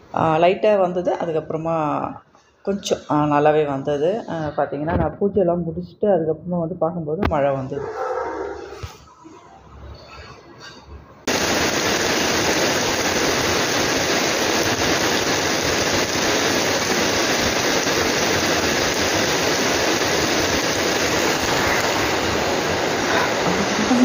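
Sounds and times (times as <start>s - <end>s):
heavy rain on paving stones: 11.3s - 24.0s.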